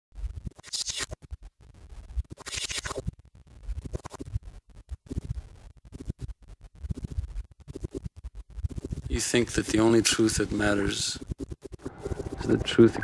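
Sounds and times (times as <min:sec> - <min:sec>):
choppy electronic music: 0:11.3 - 0:13.0.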